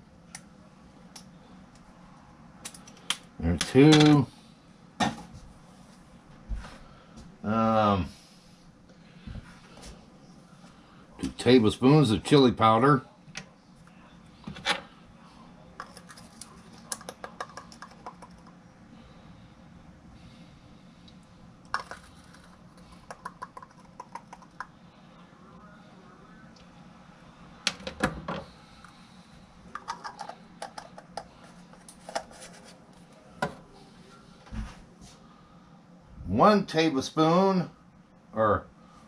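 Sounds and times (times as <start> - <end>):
faint low hum: 0.0 - 39.0
spice container clicking and tapping: 16.9 - 18.5, 21.7 - 24.7.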